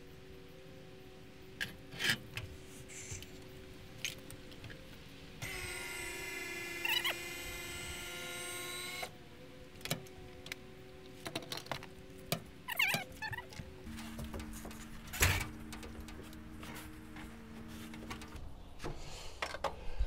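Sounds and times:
electric lift motor whining: 5.4s - 9.2s.

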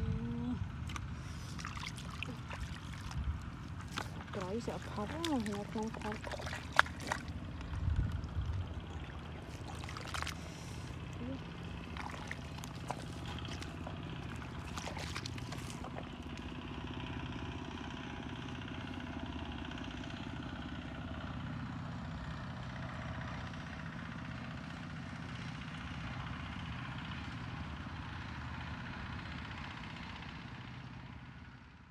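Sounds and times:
distant engine drone: 0.0s - 31.9s
bare feet splashing in mud: 0.8s - 16.9s.

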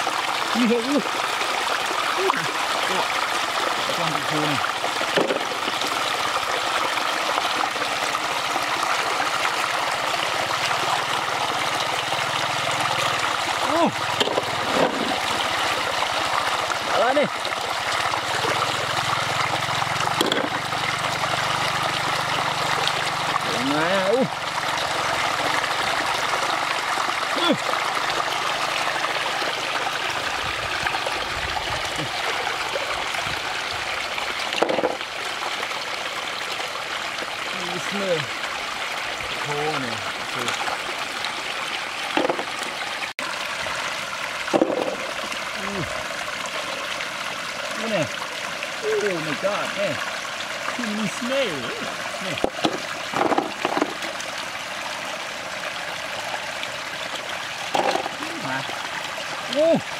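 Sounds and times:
shallow water trickling: 0.0s - 59.9s
water splash: 2.1s - 7.8s, 13.0s - 24.0s, 39.6s - 47.0s, 48.8s - 54.6s, 56.0s - 59.8s.

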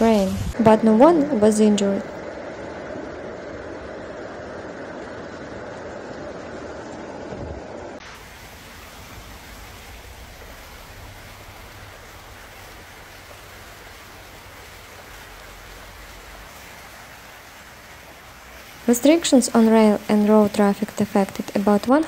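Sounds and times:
water hissing: 8.0s - 22.0s.

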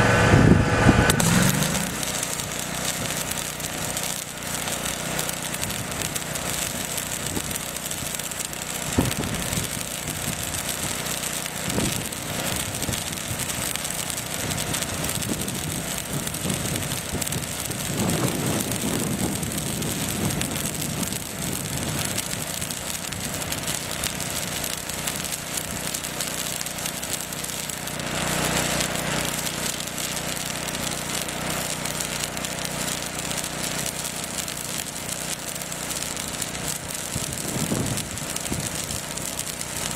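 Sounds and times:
welding arc sizzling: 0.0s - 39.9s
sharp pop: 0.7s - 2.4s.

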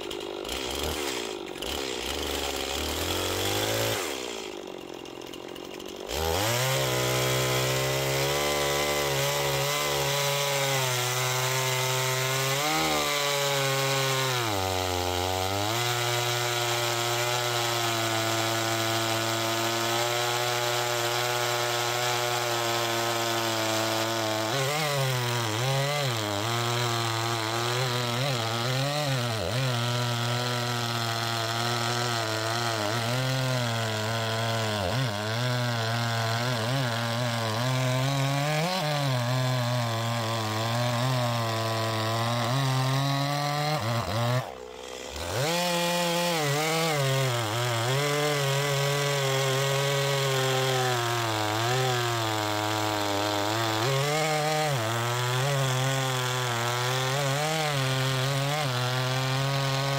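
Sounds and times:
chainsaw cutting a log: 0.0s - 59.9s.

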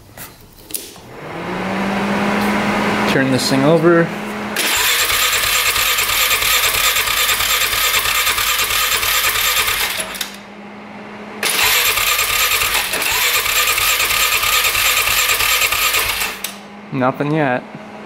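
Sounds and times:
starter motor whine: 1.0s - 17.9s
engine cranking without firing: 3.1s - 10.5s, 11.4s - 16.7s.

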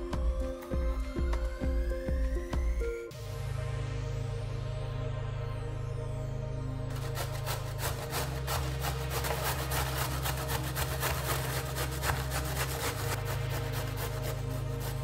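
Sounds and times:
carrot grating on metal grater: 6.9s - 15.0s.

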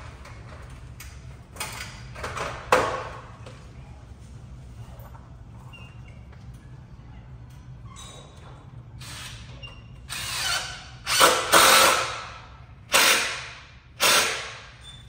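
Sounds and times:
cordless drill bursts: 10.1s - 12.2s, 12.9s - 14.6s.

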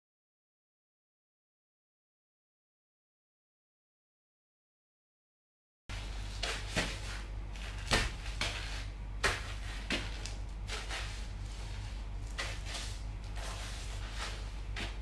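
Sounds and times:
steady low hum: 5.9s - 15.0s
boots crunching crackers on tile: 7.6s - 10.9s.

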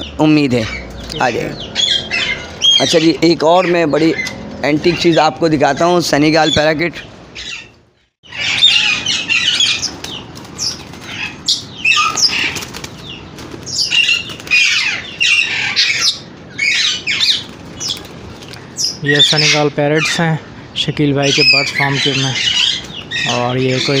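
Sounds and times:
parrots squawking and whistling: 1.5s - 4.4s, 6.4s - 10.0s, 10.6s - 12.6s, 13.7s - 18.0s, 18.8s - 20.2s, 21.2s - 24.0s
wings flapping: 9.5s - 15.7s, 17.1s - 18.8s.

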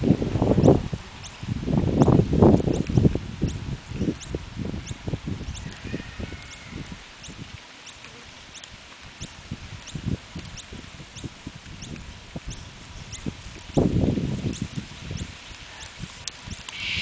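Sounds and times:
faint high chirp: 16.7s - 17.0s.

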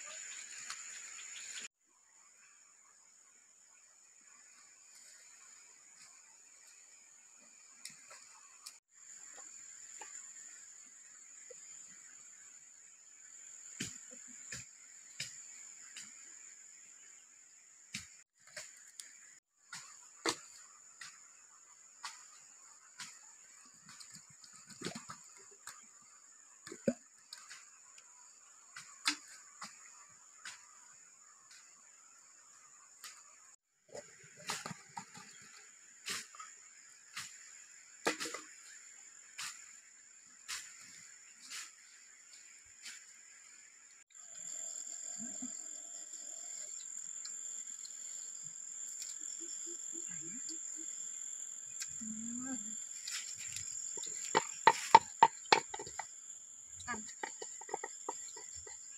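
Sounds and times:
high-pitched insect drone: 40.6s - 58.9s
bamboo tubes knocking: 53.9s - 56.1s, 57.0s - 58.9s.

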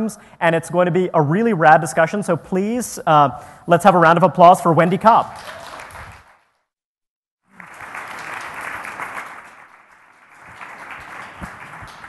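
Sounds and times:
audience applauding: 5.3s - 6.5s, 7.5s - 12.0s.

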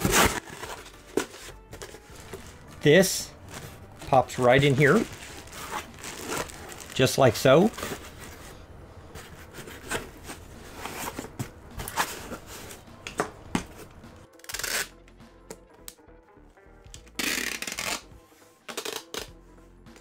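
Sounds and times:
packing tape pulled off: 4.9s - 7.0s, 14.4s - 15.0s, 17.0s - 18.1s, 18.7s - 19.3s
cardboard box handled: 7.7s - 12.8s.

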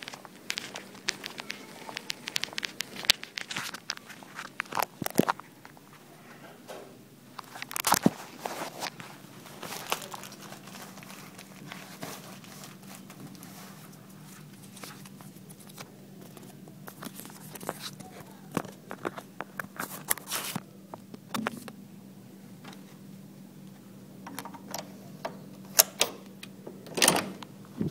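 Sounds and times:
key card clicks and rustles: 0.0s - 5.9s, 7.4s - 21.8s
steady low hum: 0.0s - 27.9s.

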